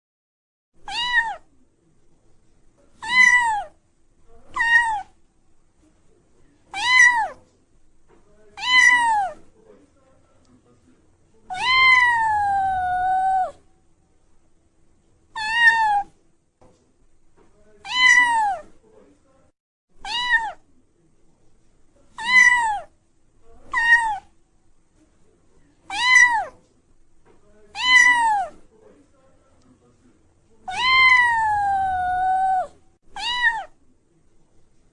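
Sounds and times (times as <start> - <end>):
cat meowing: 0.8 - 1.5, 3.0 - 3.8, 4.5 - 5.2, 6.7 - 7.4, 8.6 - 9.4, 11.5 - 13.6, 15.3 - 16.2, 17.8 - 18.7, 20.0 - 20.6, 22.2 - 22.9, 23.7 - 24.3, 25.9 - 26.6, 27.7 - 28.6, 30.6 - 33.8
kitten mewing: 0.8 - 1.5, 3.0 - 3.8, 4.5 - 5.2, 6.7 - 7.4, 8.6 - 9.4, 11.5 - 13.6, 15.4 - 16.2, 17.8 - 18.7, 20.0 - 20.6, 22.2 - 22.9, 23.7 - 24.3, 25.9 - 26.6, 27.7 - 28.6, 30.6 - 33.8.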